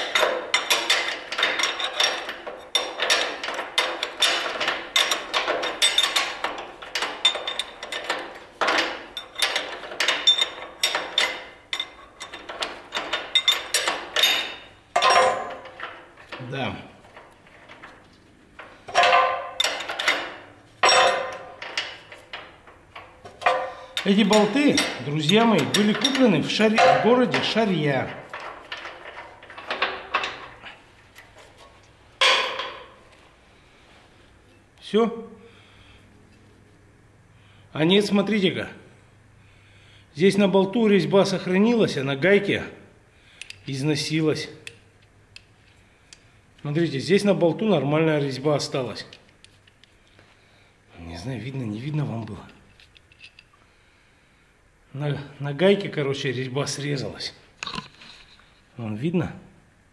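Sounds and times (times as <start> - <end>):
metallic clunk against steel frame: 0.0 - 18.0, 18.6 - 33.1
hand tools clicking and scraping metal: 0.0 - 33.0, 51.9 - 53.6.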